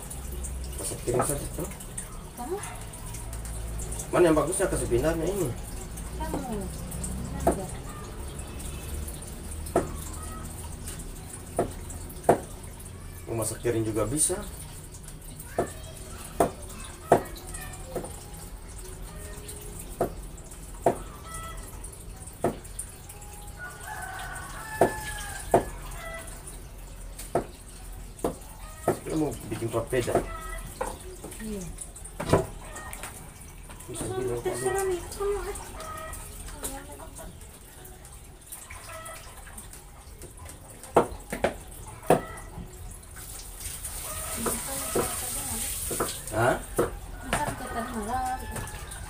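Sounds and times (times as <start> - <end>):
water splashing in a plastic basin: 0.0 - 49.0
rooster crowing: 23.5 - 26.4, 46.8 - 49.0.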